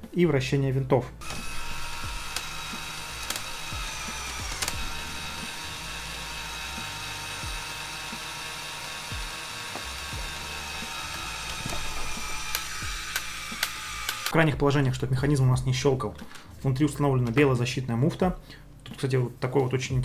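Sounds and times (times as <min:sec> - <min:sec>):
toy electric motor whirring: 0:01.2 - 0:14.4
sharp click: 0:11.5 - 0:14.4.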